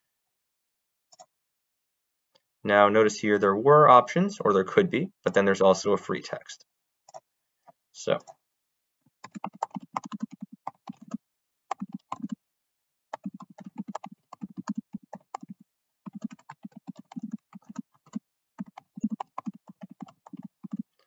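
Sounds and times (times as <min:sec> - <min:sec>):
typing on a keyboard: 0:09.2 - 0:12.4, 0:13.1 - 0:21.0.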